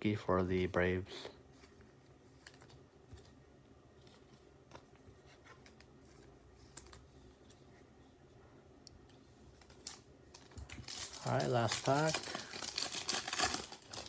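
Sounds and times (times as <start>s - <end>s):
quiet room hiss: 0.0s - 14.0s.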